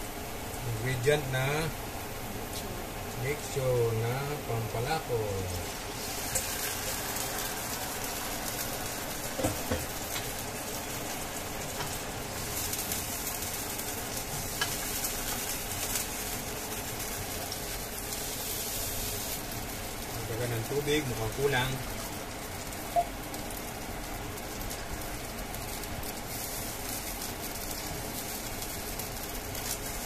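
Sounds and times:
sizzling with fine crackles: 0.0 - 30.0
sauce pouring into wok: 5.6 - 9.4.

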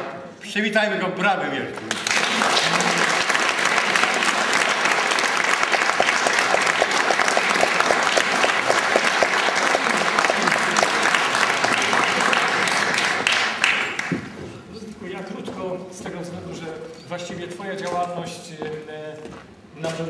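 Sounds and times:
audience applauding: 1.8 - 14.4.

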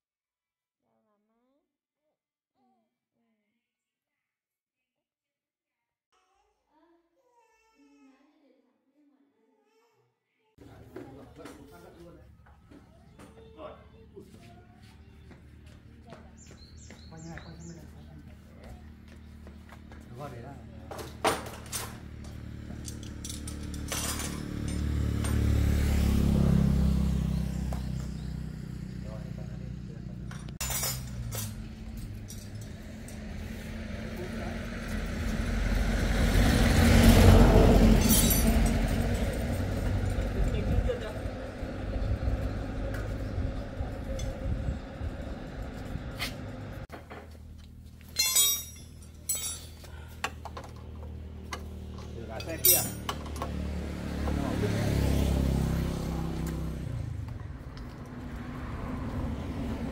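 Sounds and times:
low engine hum: 10.7 - 59.9
dishes clinking: 48.1 - 49.8.

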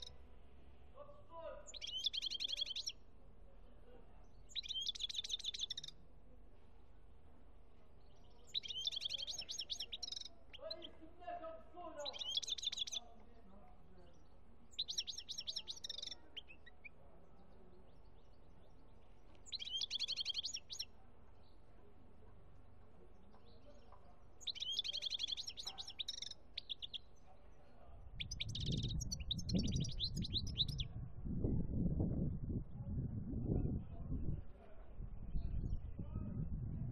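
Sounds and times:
finch twittering trills: 1.7 - 3.0, 4.4 - 6.0, 8.0 - 11.0, 12.0 - 13.2, 14.0 - 20.9, 24.4 - 27.2, 28.1 - 30.9.

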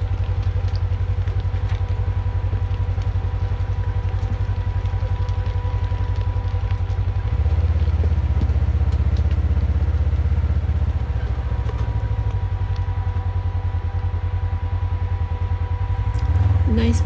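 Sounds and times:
light clicks and clatter: 0.0 - 13.2
quad engine running: 0.0 - 17.0.

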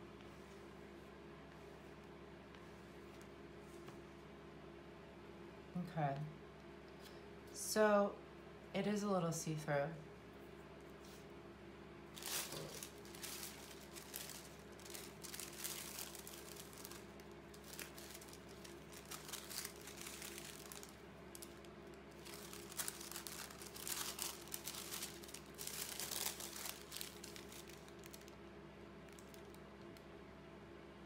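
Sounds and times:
paper rustling and crinkling: 12.1 - 28.4.

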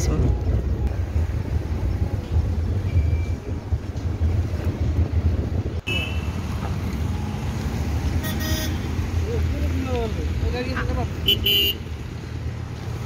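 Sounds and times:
wind noise: 0.0 - 7.2
car cabin road and engine rumble: 0.0 - 11.7.

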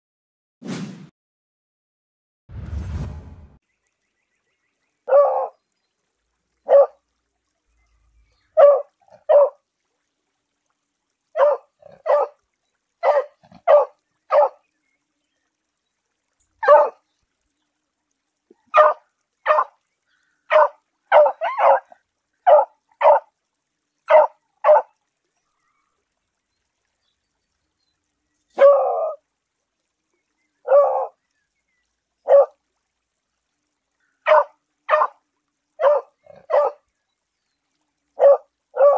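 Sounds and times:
dog barking: 5.1 - 5.5, 6.7 - 7.0, 8.6 - 9.6, 11.4 - 12.4, 13.0 - 14.6, 16.6 - 17.0, 18.7 - 19.7, 20.5 - 23.3, 24.1 - 24.9, 28.6 - 29.2, 30.7 - 31.1, 32.2 - 32.6, 34.2 - 35.2, 35.8 - 36.8, 38.2 - 38.9.

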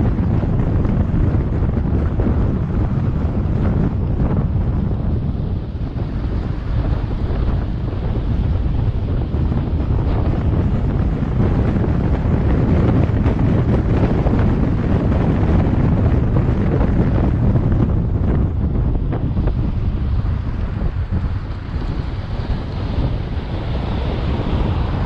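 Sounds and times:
road noise: 0.0 - 25.0
wind buffeting microphone: 0.0 - 25.0.

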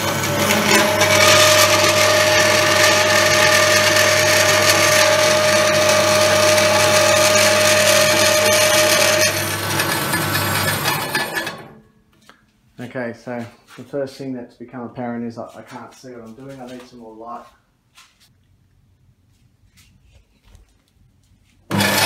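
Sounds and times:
bandsaw cutting steel: 0.0 - 11.8, 21.7 - 22.0.

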